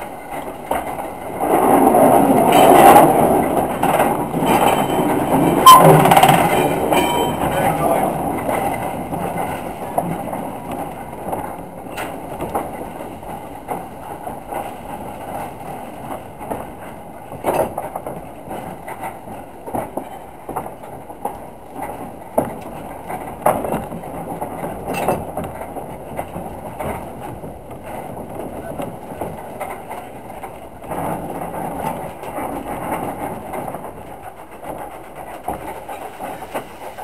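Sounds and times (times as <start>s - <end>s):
steam engine rush: 0.0s - 37.0s
steam locomotive running: 0.0s - 37.0s
sharp metal clanks: 4.4s - 7.9s.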